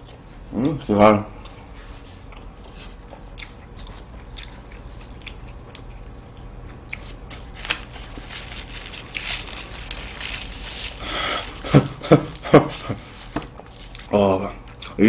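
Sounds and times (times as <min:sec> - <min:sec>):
pastry crackling as torn: 0:03.4 - 0:14.2.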